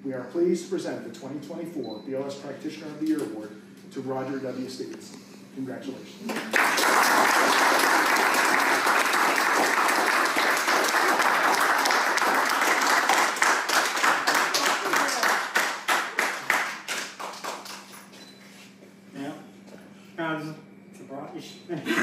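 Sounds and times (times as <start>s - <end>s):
small group applauding: 6.2s - 18.2s.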